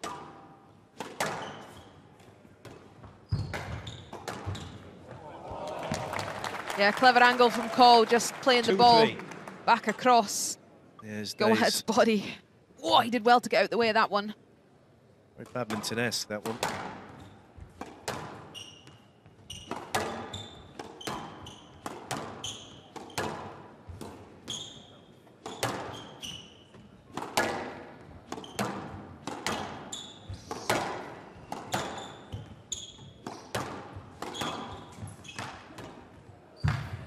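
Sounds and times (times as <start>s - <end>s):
shoes squeaking on wooden floor: 3.0s - 4.9s, 18.5s - 21.8s, 24.4s - 26.9s, 31.4s - 33.5s
squash ball hits: 17.8s - 18.4s, 19.7s - 22.4s, 27.1s - 29.8s, 30.5s - 32.0s.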